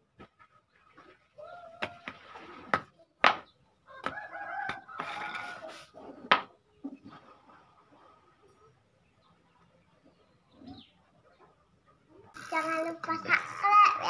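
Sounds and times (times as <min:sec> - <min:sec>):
rooster crowing: 0:03.9 - 0:05.8.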